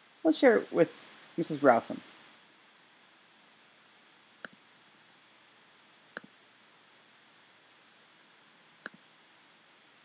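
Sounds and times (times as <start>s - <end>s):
faint steady hiss: 0.0s - 10.0s
computer mouse clicks: 4.4s - 4.6s, 6.1s - 6.4s, 8.8s - 9.0s.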